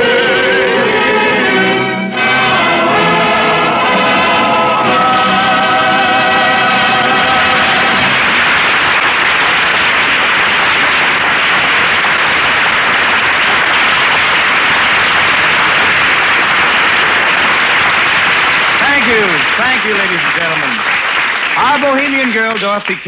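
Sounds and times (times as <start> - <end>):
audience applause: 6.0 - 23.0.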